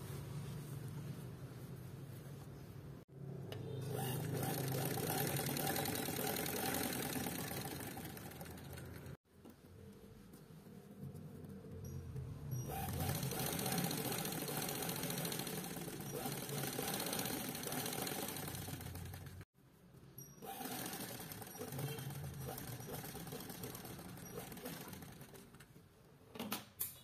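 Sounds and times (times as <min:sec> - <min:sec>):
sewing machine stitching: 0:03.8 - 0:09.2, 0:12.5 - 0:19.4, 0:20.4 - 0:25.7.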